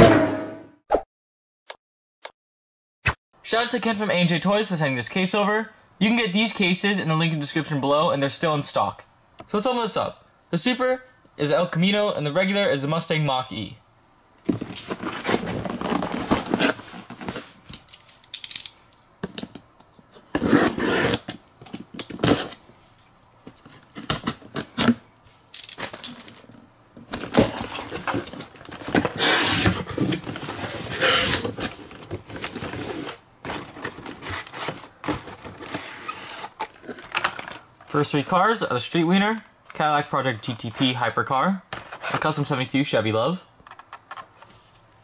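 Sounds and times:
cardboard flaps scraping and tearing: 14.5 - 17.6, 27.1 - 37.2
packaged toy cars rustling: 14.5 - 18.7, 25.6 - 38.2
box cutter slicing tape: 20.3 - 21.3, 28.9 - 31.7.

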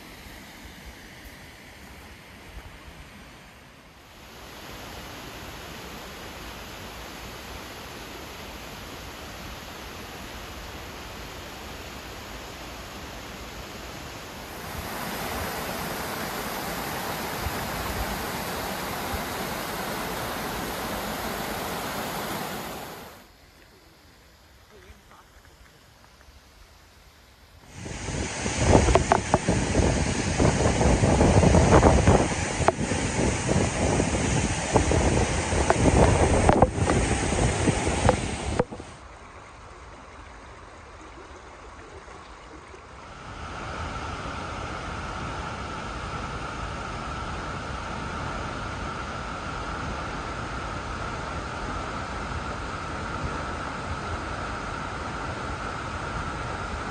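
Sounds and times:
waterfall rushing: 4.2 - 23.3, 27.7 - 39.7
wind on microphone: 14.4 - 23.2, 27.7 - 39.0.

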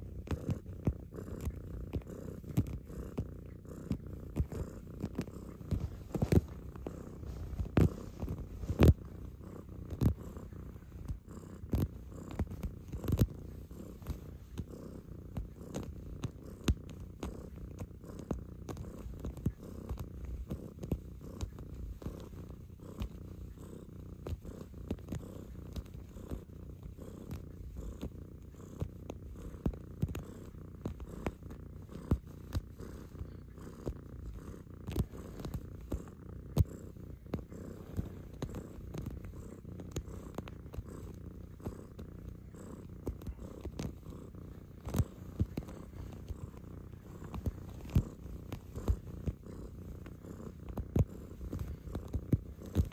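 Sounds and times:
cat purring: 0.0 - 52.9
paws clicking and knocking: 42.7 - 46.6.

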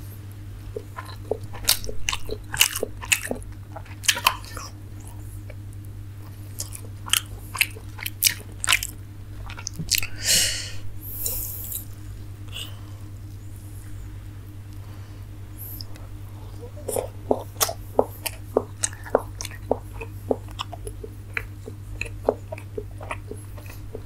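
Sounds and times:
wet mouth clicks: 0.7 - 5.6, 6.3 - 10.2, 15.7 - 24.0
person chewing and mouth smacking: 0.7 - 10.2, 15.6 - 24.0.

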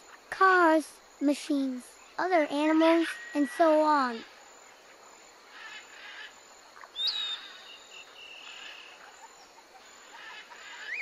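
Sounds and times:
insects buzzing: 0.0 - 11.0
high thin bird calls: 2.1 - 4.4, 5.5 - 11.0.

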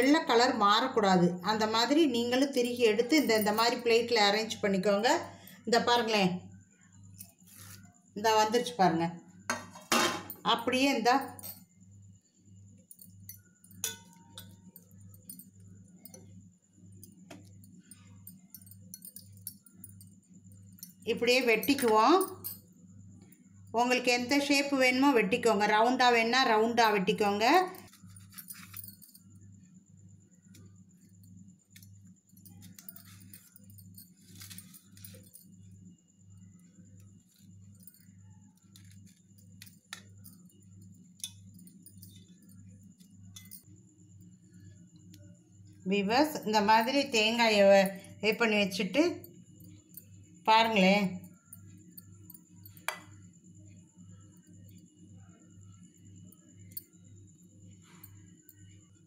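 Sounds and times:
clinks of a steel plate: 13.7 - 14.6.

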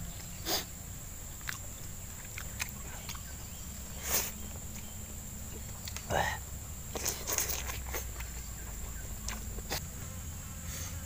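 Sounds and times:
low outdoor rumble: 0.0 - 11.0
man chewing and lip-smacking: 1.3 - 9.8.

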